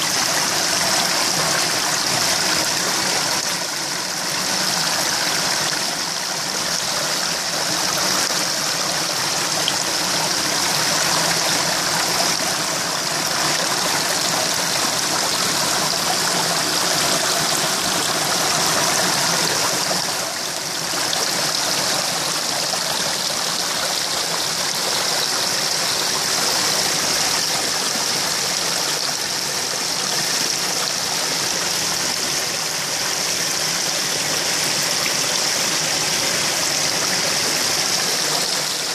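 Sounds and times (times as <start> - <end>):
churning bubbling water: 0.0 - 38.9.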